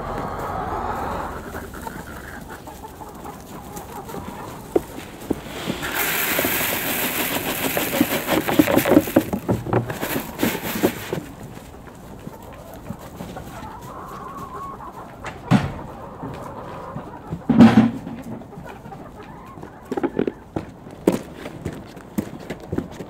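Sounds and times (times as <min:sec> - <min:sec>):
hens clucking: 0:00.0 - 0:22.7
grain pouring into plastic feeder: 0:04.7 - 0:11.4.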